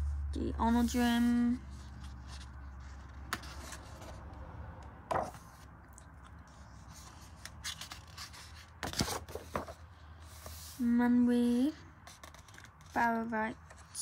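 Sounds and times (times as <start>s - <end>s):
low steady hum: 0.0s - 14.0s
paper pages rustling: 1.6s - 4.3s, 5.2s - 10.8s, 12.0s - 14.0s.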